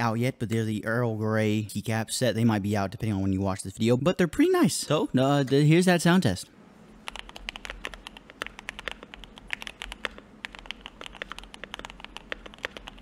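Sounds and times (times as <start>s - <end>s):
fast mechanical keyboard typing: 7.0s - 13.0s.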